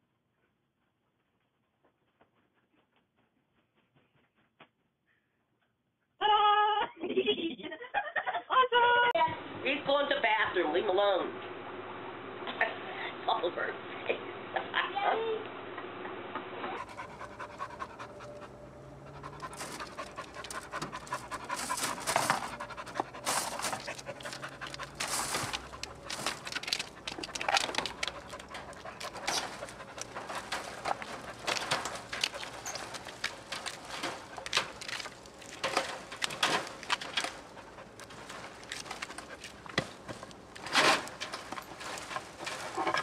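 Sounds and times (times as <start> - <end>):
dog panting hard: 16.8 - 43.0.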